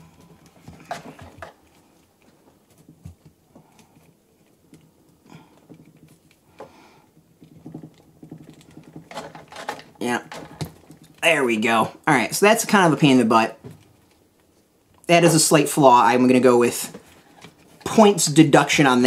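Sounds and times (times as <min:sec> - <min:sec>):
plastic toy clicks and rustles: 0:07.6 - 0:11.2.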